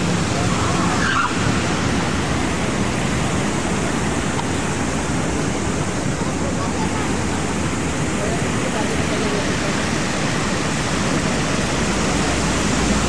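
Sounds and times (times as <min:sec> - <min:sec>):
fountain water splashing: 0:00.0 - 0:13.0
street traffic: 0:00.0 - 0:13.0.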